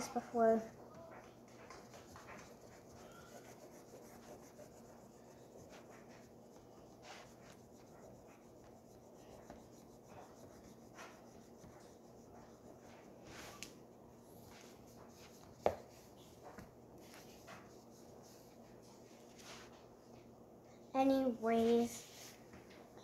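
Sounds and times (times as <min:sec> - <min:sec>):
oil pastels scratching on paper: 0:01.5 - 0:13.8, 0:14.4 - 0:18.6.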